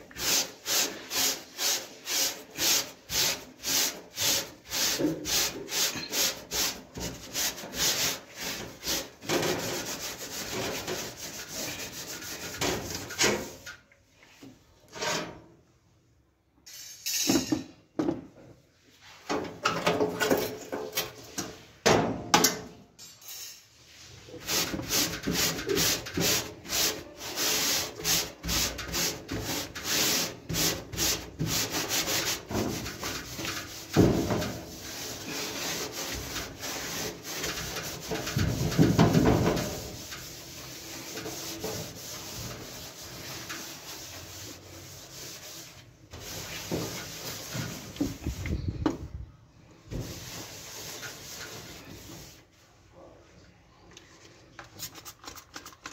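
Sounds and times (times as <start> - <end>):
steel wool scrubbing metal: 0.1 - 13.7, 24.3 - 48.4, 49.9 - 52.4.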